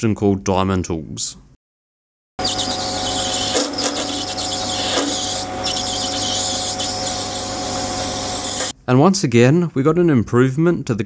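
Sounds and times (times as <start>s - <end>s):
hiss of cutting plastic: 2.4s - 8.7s
lathe motor hum and whine: 2.4s - 8.7s.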